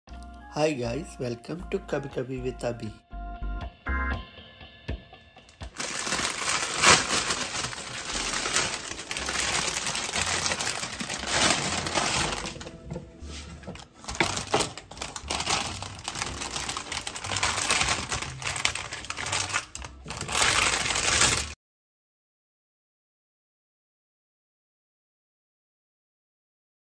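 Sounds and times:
plastic bag crinkling: 5.7 - 21.6.

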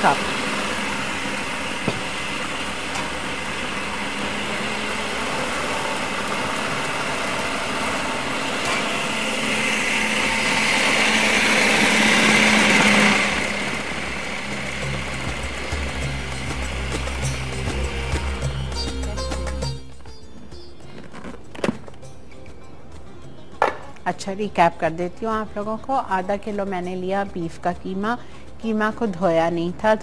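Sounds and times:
gas burner hissing: 0.0 - 19.2.

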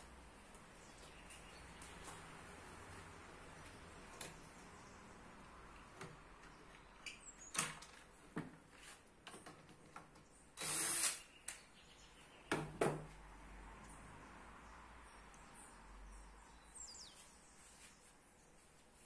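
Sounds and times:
cordless drill whirring: 10.6 - 11.2.

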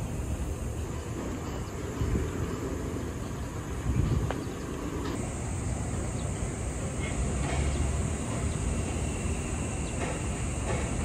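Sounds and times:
distant traffic rumble: 0.0 - 11.0
broad hiss: 5.1 - 11.0.

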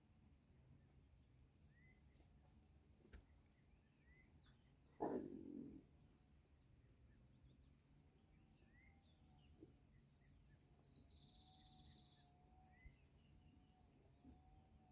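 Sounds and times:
bird chirps: 1.6 - 4.9, 8.4 - 14.4.

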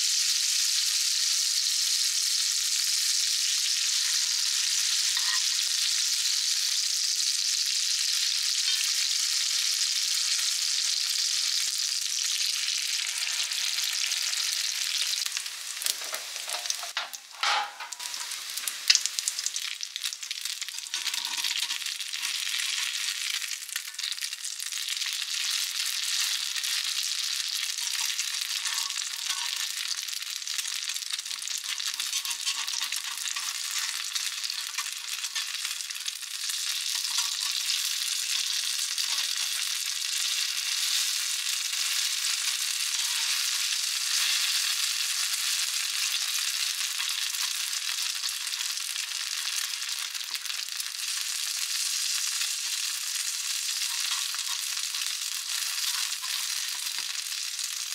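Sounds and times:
fritters sizzling in oil: 0.0 - 57.9.

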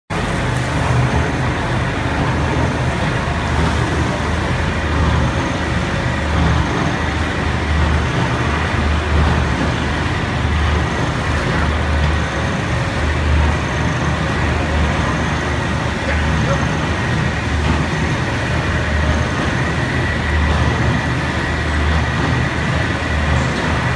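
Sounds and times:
loud mechanical din with throb: 0.1 - 23.9.

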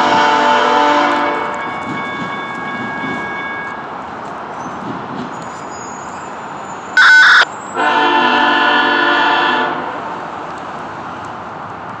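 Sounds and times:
locomotive air horn: 0.0 - 1.6, 7.0 - 10.1.

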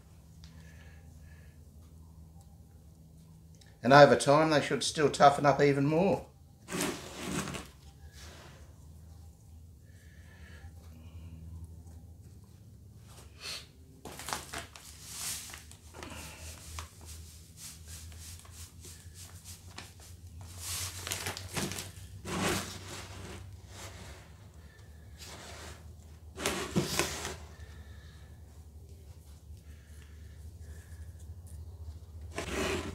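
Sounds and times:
plastic bag rustling: 6.7 - 7.8, 14.0 - 28.0
gloved hand scooping salt: 32.3 - 32.9.

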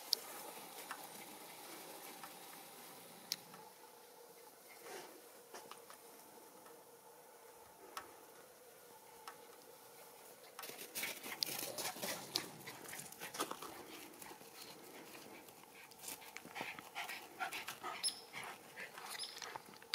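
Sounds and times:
dog panting: 10.6 - 19.8.

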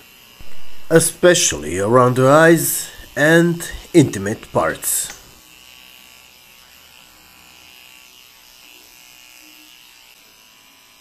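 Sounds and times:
electric clippers buzzing: 5.1 - 11.0.

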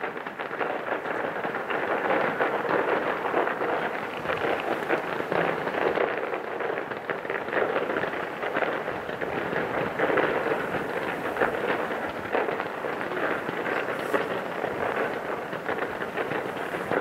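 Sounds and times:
fireworks crackling: 0.0 - 17.0.

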